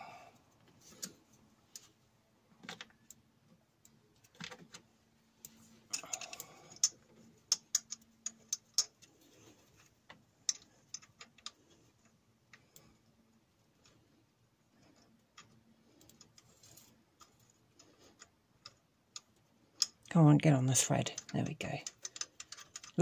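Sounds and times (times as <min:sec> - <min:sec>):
metallic clicks and light taps: 0:05.4 - 0:09.1, 0:21.0 - 0:23.0.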